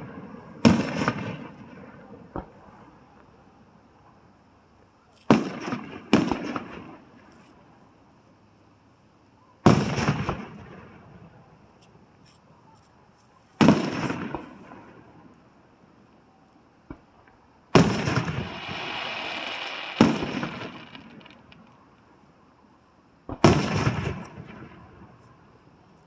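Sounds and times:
firework booms with rumbling echo: 0.0s - 1.8s, 5.3s - 6.9s, 9.7s - 11.0s, 13.6s - 15.0s, 17.7s - 21.7s, 23.3s - 25.2s.

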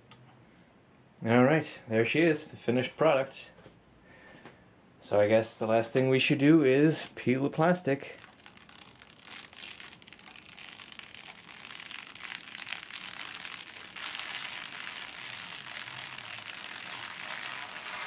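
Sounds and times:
plastic film peeling and crinkling: 6.4s - 18.0s.

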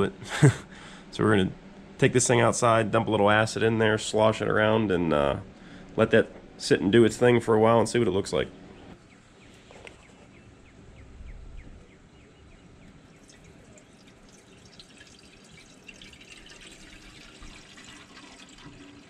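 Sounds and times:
liquid trickling into tank: 13.1s - 19.0s.

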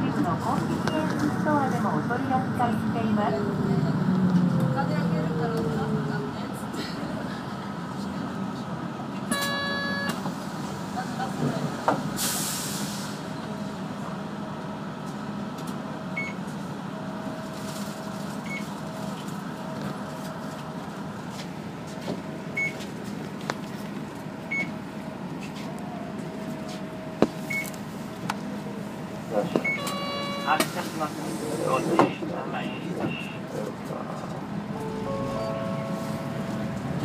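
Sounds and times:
bus engine humming: 0.0s - 37.0s
hiss of air: 12.2s - 13.2s.

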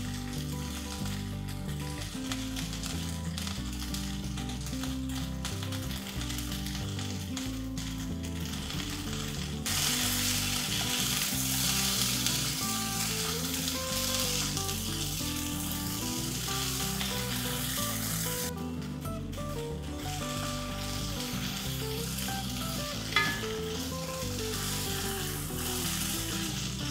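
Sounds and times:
background music: 0.0s - 26.9s
vegetables sizzling in pot: 0.0s - 26.9s.

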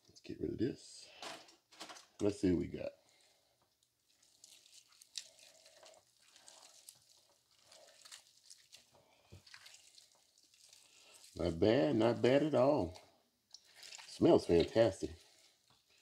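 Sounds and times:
rubber gloves rustling: 3.0s - 16.0s
meat tearing and squishing: 3.1s - 11.5s, 12.1s - 16.0s.

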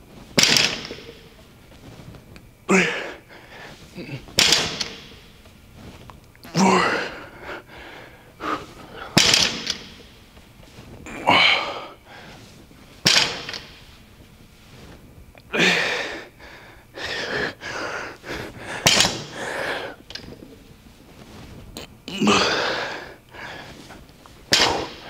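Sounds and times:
person grunting with effort: 2.7s - 3.2s, 4.0s - 4.3s, 6.5s - 7.3s, 11.1s - 12.0s, 15.5s - 16.1s, 22.1s - 23.0s
person exhaling forcefully: 15.5s - 20.0s.

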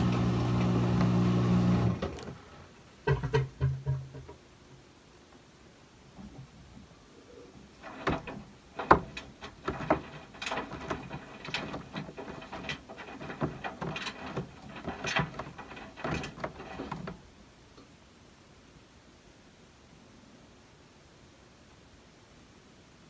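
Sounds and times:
washing machine tumbling laundry: 0.0s - 4.2s, 7.8s - 17.4s.

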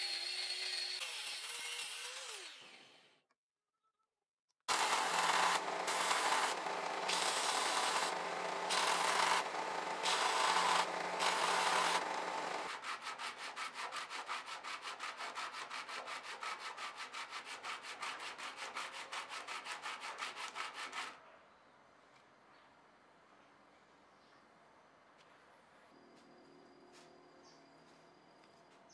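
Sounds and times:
belt sander grinding: 4.7s - 12.8s
metal plate rubbed on wet sandpaper: 12.7s - 21.2s.

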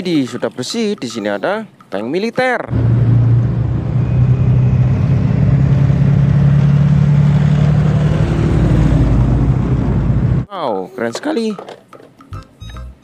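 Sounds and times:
tracked vehicles driving past: 2.7s - 10.5s.

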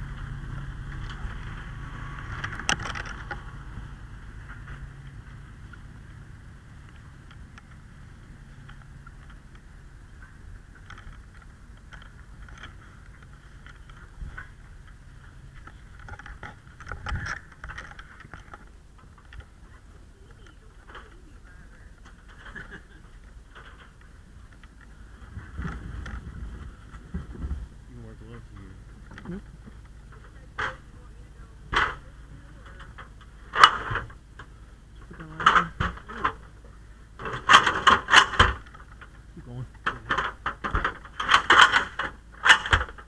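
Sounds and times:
low rumble: 0.0s - 39.8s
metal ladder clanking: 37.2s - 39.1s, 39.8s - 43.0s.

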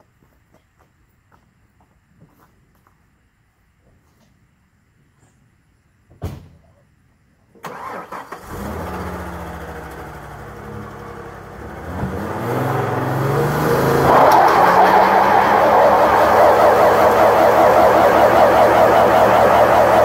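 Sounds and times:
pickup engine starting and revving: 7.6s - 20.0s.

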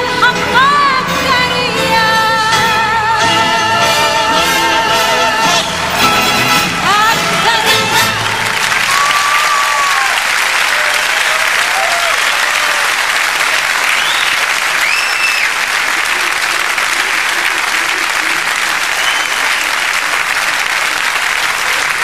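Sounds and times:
audience applauding: 7.2s - 22.0s
crowd calls and whistles: 13.8s - 15.6s, 18.8s - 19.9s.

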